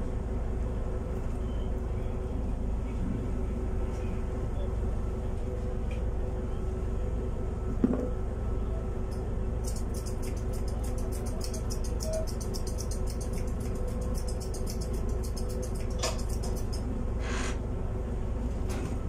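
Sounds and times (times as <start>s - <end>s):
steady low hum: 0.0s - 19.0s
scissors snipping fur: 9.6s - 16.9s.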